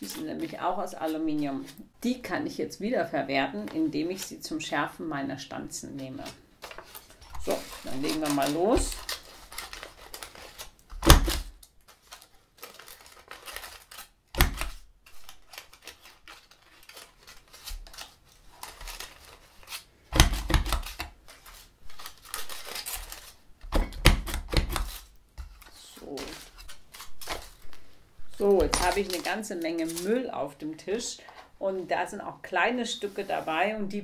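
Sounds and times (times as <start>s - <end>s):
foil crinkling: 6.2s - 23.5s, 24.2s - 30.3s.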